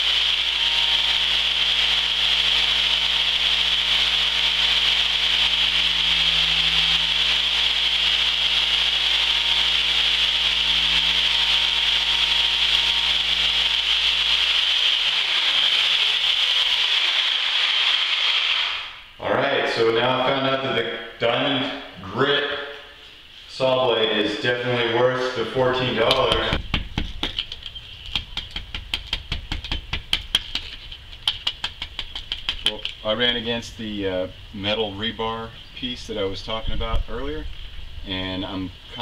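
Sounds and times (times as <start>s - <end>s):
reciprocating saw grinding glass: 0.0s - 19.1s.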